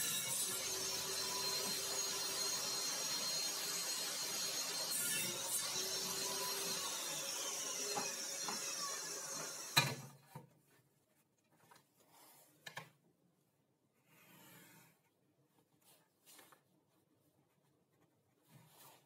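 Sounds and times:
table saw whine spinning down: 0:00.0 - 0:10.0.

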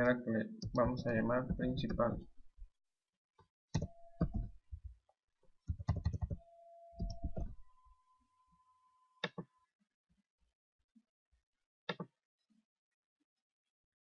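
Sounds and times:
keyboard key presses: 0:03.8 - 0:04.6, 0:05.7 - 0:06.4.

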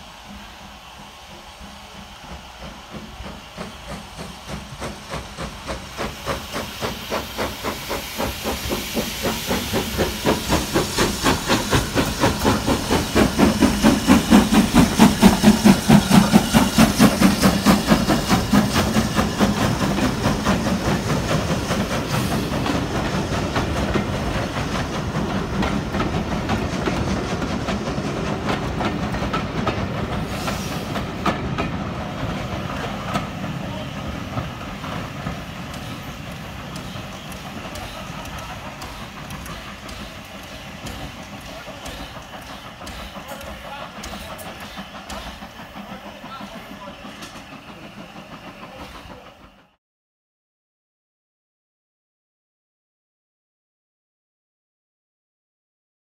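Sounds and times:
steam hissing: 0:00.0 - 0:49.8
steam locomotive chuffing: 0:00.0 - 0:49.8.

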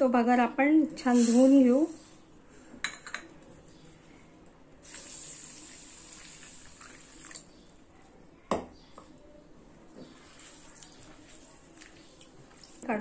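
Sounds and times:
water pouring into bowl: 0:04.8 - 0:07.5, 0:10.2 - 0:12.9.

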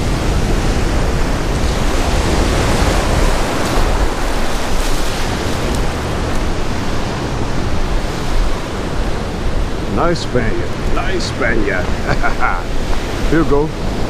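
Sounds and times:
ocean surf rushing: 0:00.0 - 0:14.0
wind buffeting microphone: 0:00.0 - 0:14.0.

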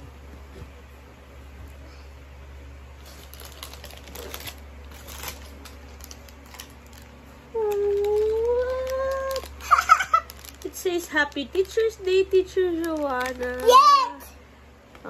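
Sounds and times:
cellophane crinkling: 0:02.9 - 0:14.2.

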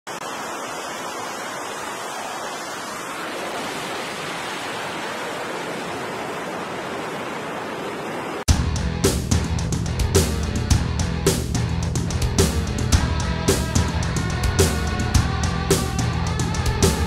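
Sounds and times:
wind: 0:00.1 - 0:08.5.

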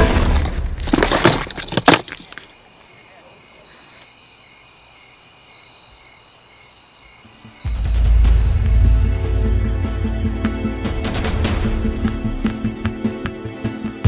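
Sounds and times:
crickets chirping: 0:00.0 - 0:10.9.

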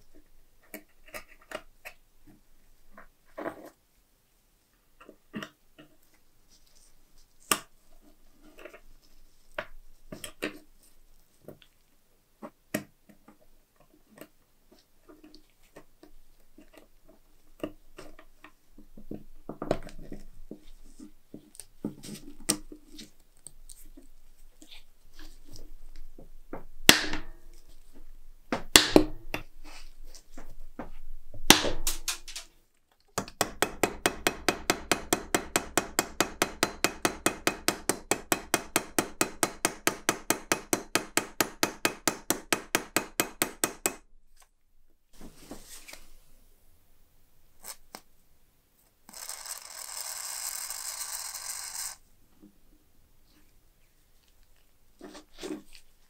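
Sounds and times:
sharp knocks: 0:26.5 - 0:27.4, 0:28.5 - 0:29.4.

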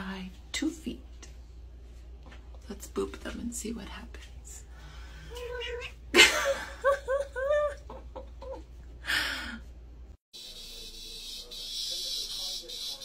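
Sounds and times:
cat meowing: 0:05.3 - 0:06.0.

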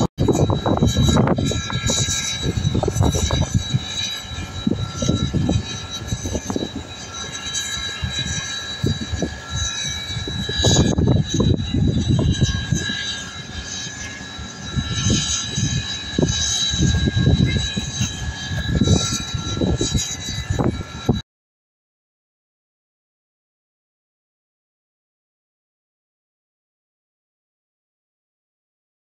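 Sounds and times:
thin high whine: 0:00.0 - 0:21.2.

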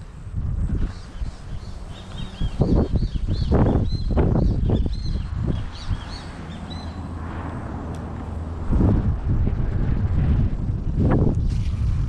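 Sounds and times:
steady low rumble: 0:00.0 - 0:12.0
high bird chirps: 0:00.9 - 0:07.1.

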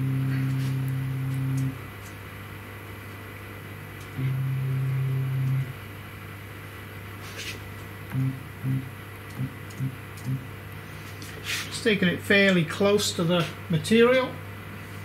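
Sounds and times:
stepper motor whine: 0:00.0 - 0:01.9, 0:04.1 - 0:06.0, 0:08.1 - 0:10.5
faint steady hum: 0:00.0 - 0:15.0.

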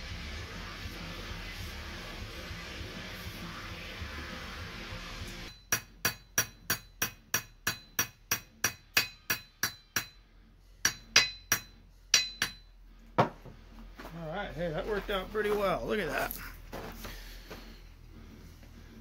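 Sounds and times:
hammer tapping metal wedge: 0:05.5 - 0:10.2, 0:10.8 - 0:13.3.

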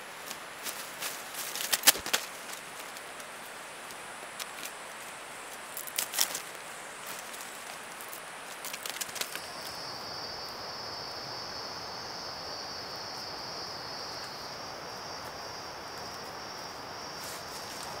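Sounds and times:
background hiss: 0:00.0 - 0:18.0
insects droning: 0:00.0 - 0:18.0.

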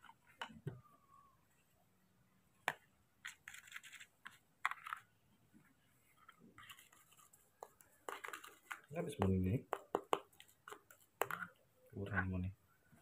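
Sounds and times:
spoon scraping plastic bowl: 0:06.6 - 0:08.9.

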